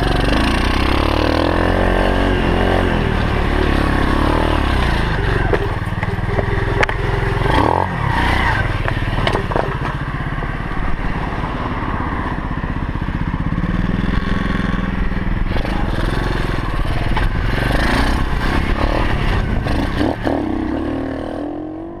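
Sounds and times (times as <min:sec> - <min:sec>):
motorcycle engine revving: 0:00.0 - 0:22.0
bike knocks and rattles: 0:08.8 - 0:10.5.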